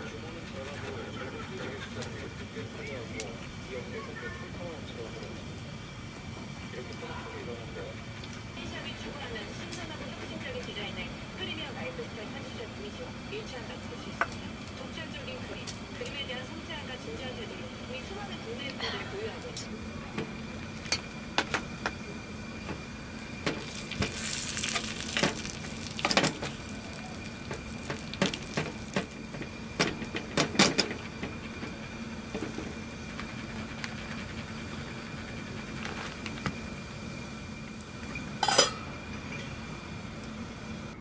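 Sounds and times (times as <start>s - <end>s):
light sizzle: 17.4s - 41.0s
utensil scraping in frying pan: 23.4s - 29.4s.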